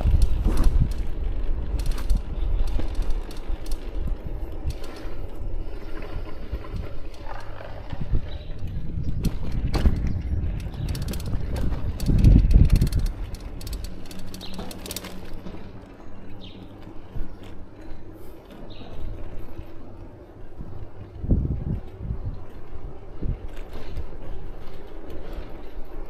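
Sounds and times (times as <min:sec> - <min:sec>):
bicycle rattling over cobblestones: 0:00.0 - 0:26.0.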